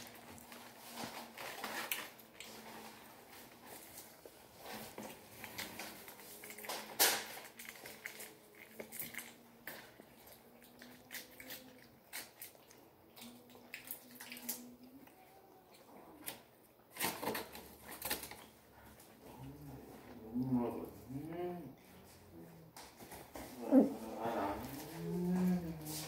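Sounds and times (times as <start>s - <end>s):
person chewing: 1.4s - 21.3s.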